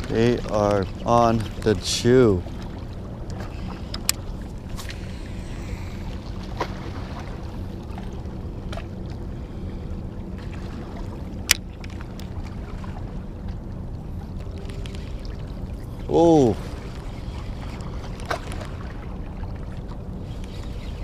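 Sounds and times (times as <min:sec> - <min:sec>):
wind and water rumble: 0:00.0 - 0:21.0
faint ticks: 0:14.3 - 0:15.9, 0:20.3 - 0:21.0.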